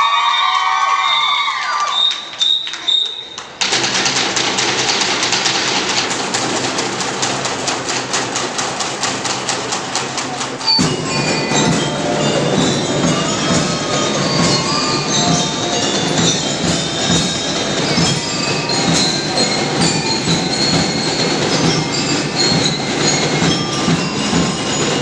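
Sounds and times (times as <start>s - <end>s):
snare drums beating: 3.5s - 25.0s
bell lyres: 9.2s - 25.0s.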